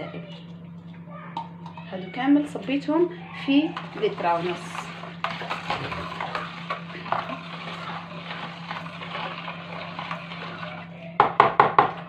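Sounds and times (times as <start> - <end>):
whisk wires clicking on basin: 0.5 - 12.0
water sloshing: 2.6 - 11.0.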